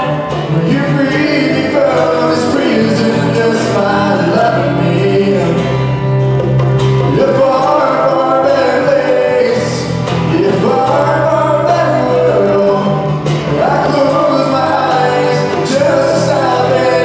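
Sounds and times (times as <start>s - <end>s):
man singing into microphone: 0.0s - 6.2s, 7.0s - 17.0s
guitar: 0.0s - 17.0s.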